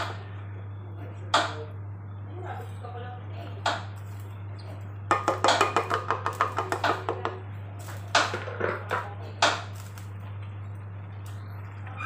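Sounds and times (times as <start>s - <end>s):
steady low hum: 0.0s - 12.0s
utensils knocking against a pan: 5.1s - 7.4s.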